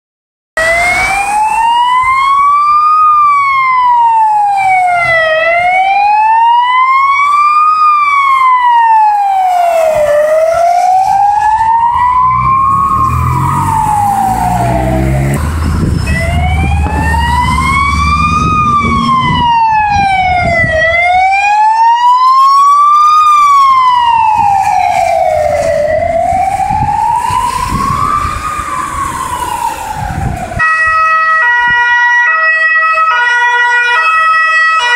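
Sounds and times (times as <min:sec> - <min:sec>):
emergency siren wailing: 0:00.6 - 0:34.9
vehicle passing close: 0:09.7 - 0:21.0.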